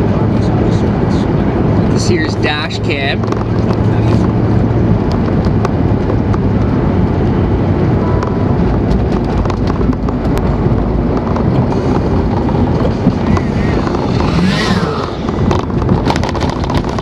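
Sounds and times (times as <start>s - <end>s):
snowmobile engine rumbling: 0.0s - 17.0s
sharp clicks and knocks: 3.2s - 4.4s, 8.2s - 17.0s
wind buffeting microphone: 3.2s - 17.0s.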